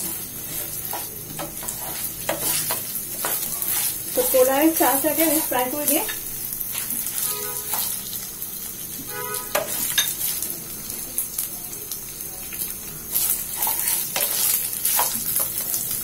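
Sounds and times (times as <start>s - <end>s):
spatula scraping pan: 0.0s - 8.2s, 9.1s - 10.5s, 13.1s - 15.9s
rice sizzling in hot oil: 0.0s - 16.0s.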